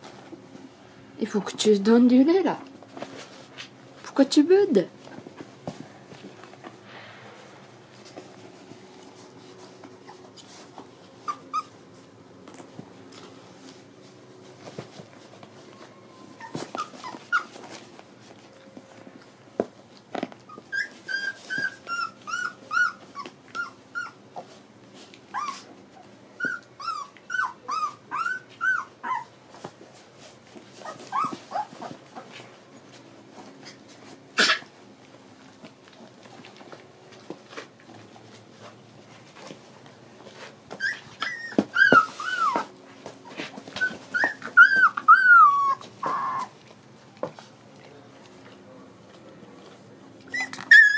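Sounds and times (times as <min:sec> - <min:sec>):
puppies whining and whimpering: 0:10.0 - 0:12.1, 0:15.7 - 0:18.0, 0:20.4 - 0:24.6, 0:25.2 - 0:29.4, 0:30.7 - 0:32.3, 0:40.7 - 0:46.7, 0:50.2 - 0:50.9.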